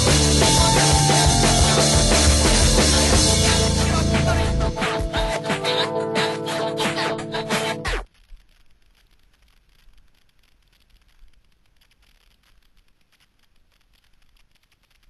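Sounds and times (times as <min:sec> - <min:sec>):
guitar music: 0:00.0 - 0:07.8.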